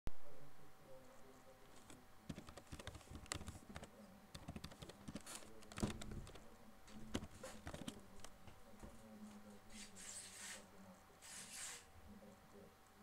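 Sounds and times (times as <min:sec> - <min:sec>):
typing on computer keyboard: 0:02.3 - 0:06.4.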